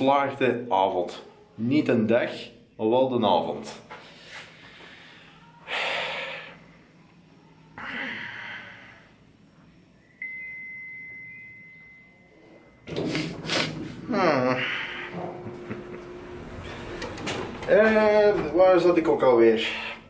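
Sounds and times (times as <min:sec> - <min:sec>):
low hum: 0:08.2 - 0:18.6
lift chime beep: 0:10.1 - 0:13.0.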